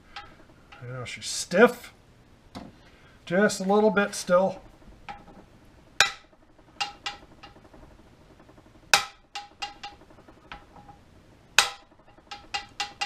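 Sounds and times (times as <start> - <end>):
hammer tapping on metal: 6.0 - 7.8, 8.4 - 11.0, 11.6 - 13.0.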